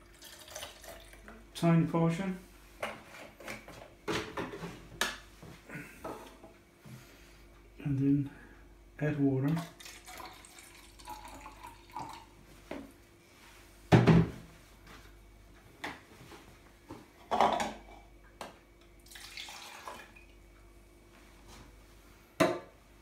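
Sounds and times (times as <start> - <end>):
water pouring into plastic cup: 0.0 - 1.3, 9.5 - 12.3, 19.0 - 20.3.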